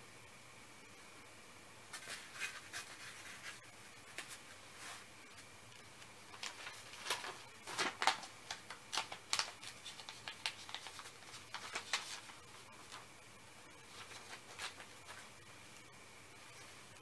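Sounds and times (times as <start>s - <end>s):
paper sheets rustling: 1.9s - 5.5s, 6.3s - 13.1s, 13.8s - 15.3s.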